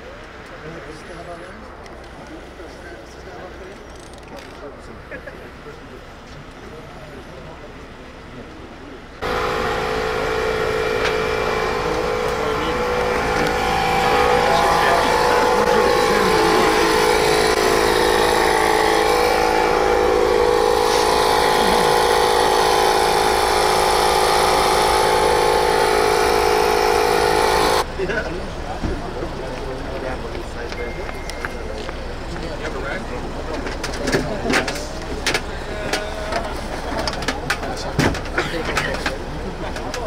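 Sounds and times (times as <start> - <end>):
car engine running: 9.2 - 30.7.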